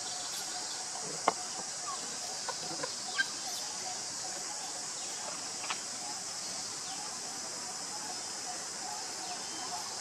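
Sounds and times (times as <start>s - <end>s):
faint chirps and clicks: 0.0s - 5.9s.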